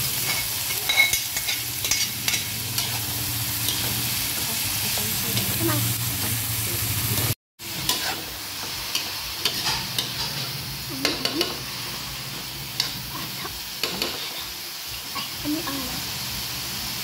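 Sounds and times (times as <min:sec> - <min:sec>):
vegetables sizzling in a hot pan: 0:00.0 - 0:17.0
spatula scraping a pan: 0:00.2 - 0:04.1, 0:07.7 - 0:14.6.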